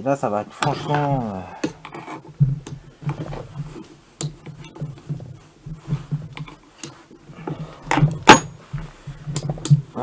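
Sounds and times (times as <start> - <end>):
sharp metal knocks: 7.9 - 8.7.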